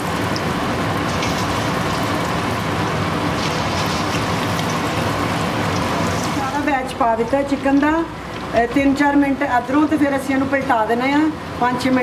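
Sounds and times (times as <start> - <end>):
chicken sizzling in hot oil: 0.0 - 8.6.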